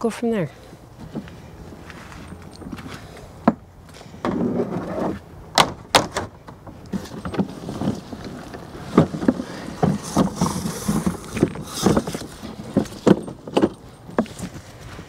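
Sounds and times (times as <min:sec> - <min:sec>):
garden cart bumping: 0:00.8 - 0:15.0
door scraping: 0:01.0 - 0:14.6
shed door knocks and clicks: 0:05.5 - 0:07.5.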